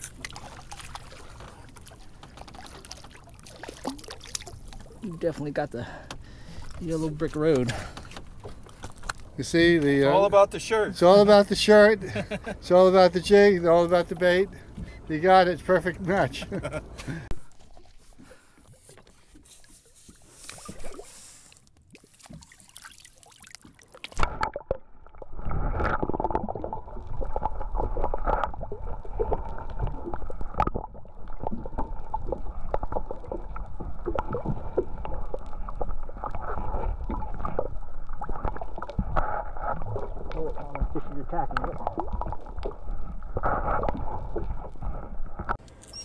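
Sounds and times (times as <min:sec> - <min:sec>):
underwater rumble: 0:24.2 - 0:45.6.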